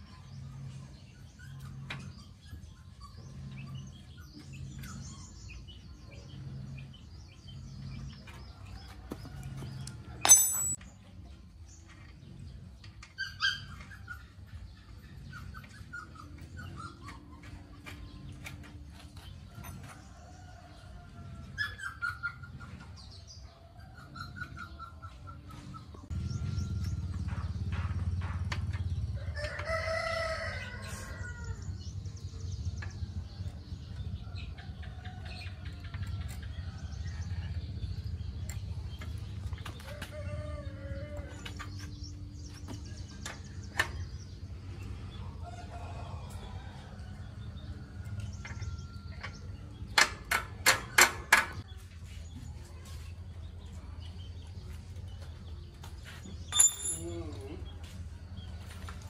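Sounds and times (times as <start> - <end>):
rooster crowing: 29.2 - 31.6.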